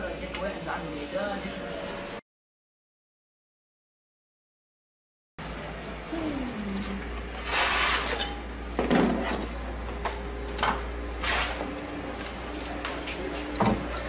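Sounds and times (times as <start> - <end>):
rustling scrape: 7.4 - 8.3.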